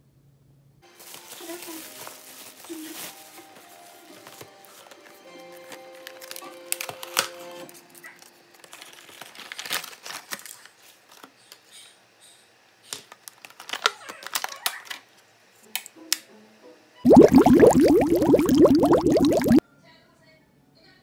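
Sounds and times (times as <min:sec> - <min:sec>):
faint background music: 0:00.0 - 0:09.5.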